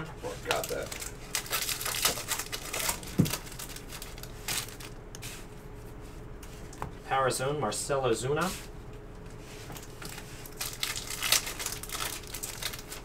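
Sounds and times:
foil wrapper tearing and crinkling: 0.4 - 5.0, 9.8 - 13.0.

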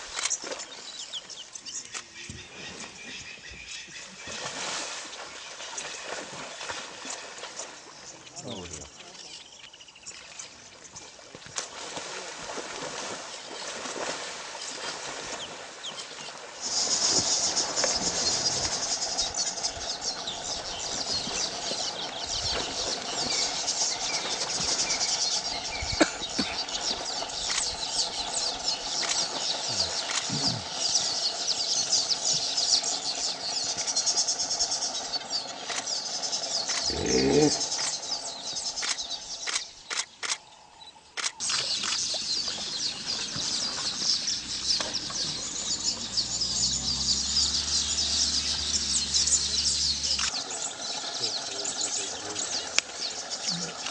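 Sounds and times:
high-pitched chirping chorus: 16.6 - 53.9.

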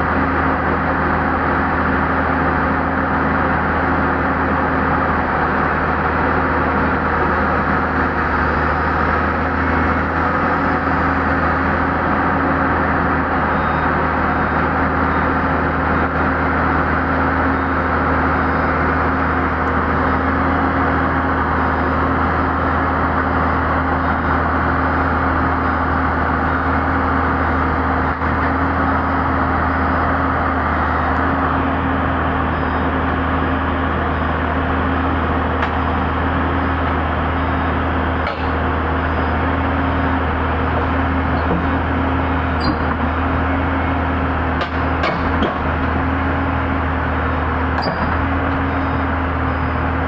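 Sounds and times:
excavator diesel engine running: 0.0 - 50.0.

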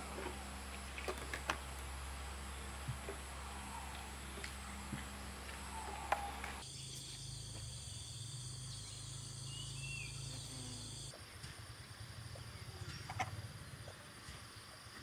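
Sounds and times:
insect chorus trilling: 0.0 - 15.0
bird chirps: 2.4 - 11.5.

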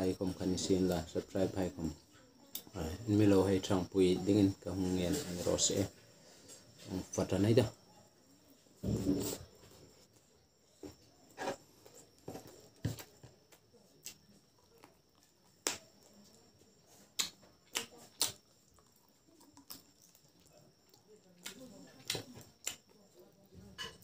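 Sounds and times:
mouth chewing wet clicks: 17.1 - 23.0.

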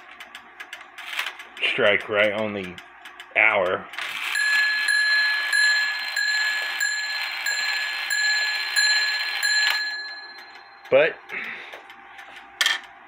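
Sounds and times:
clock hammer striking bell: 4.2 - 11.2.

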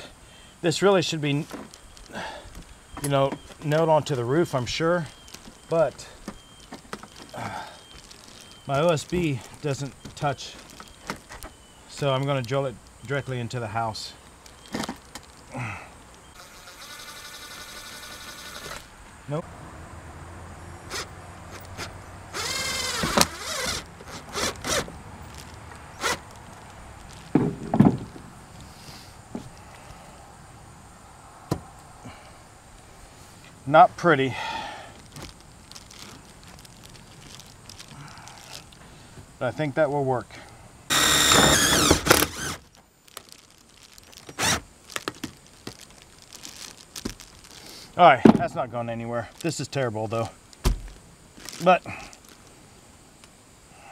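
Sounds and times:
cordless drill whine: 16.4 - 18.9, 21.7 - 24.9, 40.9 - 42.6, 44.3 - 44.6.

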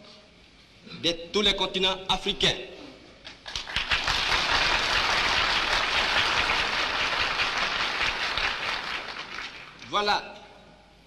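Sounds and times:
audience applauding: 3.4 - 9.8.

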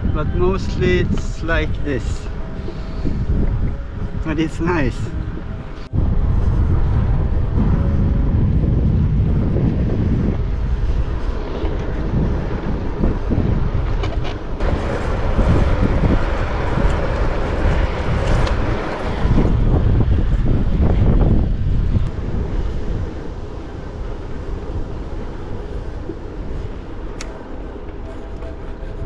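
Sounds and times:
bicycle tyres rolling on asphalt: 0.0 - 29.0
wind gusting over microphone: 0.0 - 29.0.

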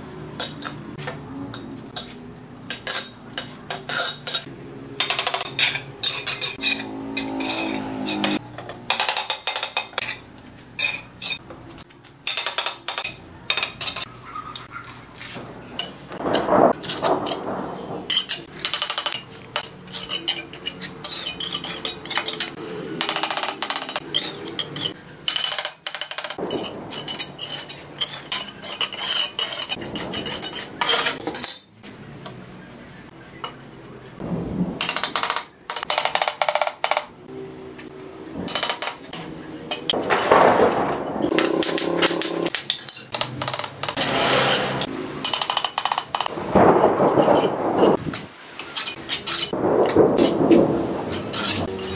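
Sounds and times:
trowel scraping wet mortar: 27.1 - 31.2.

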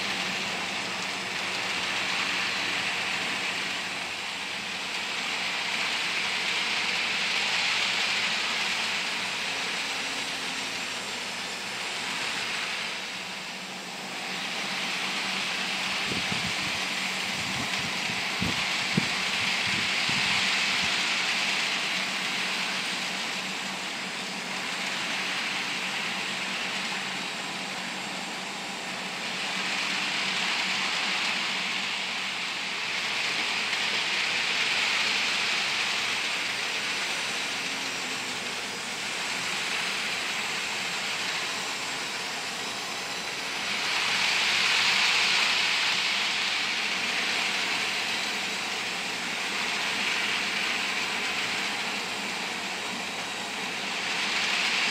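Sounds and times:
model train running on track: 0.0 - 54.9.

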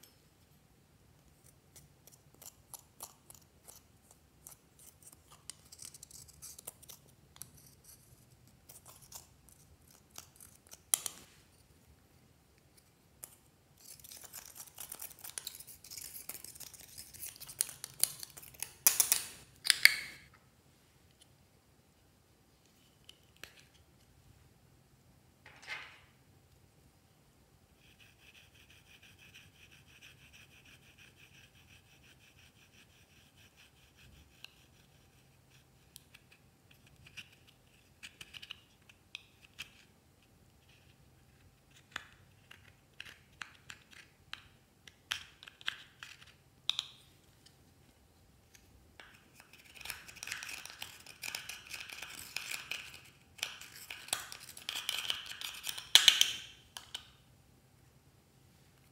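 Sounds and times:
spatula scraping eyeshadow: 1.8 - 10.9.

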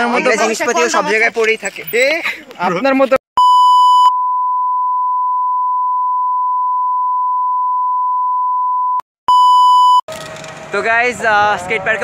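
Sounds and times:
harsh beep: 3.4 - 10.0
steady pure beep tone: 3.4 - 10.0.

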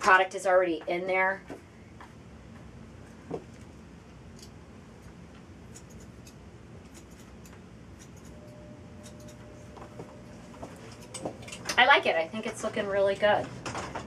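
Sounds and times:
low steady room hum: 0.0 - 14.0
shears snipping hair: 5.7 - 13.4.

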